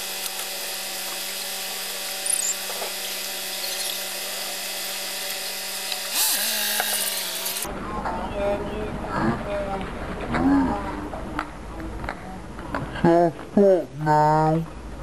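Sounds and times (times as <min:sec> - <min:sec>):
sped-up engine whine: 0:00.0 - 0:07.7.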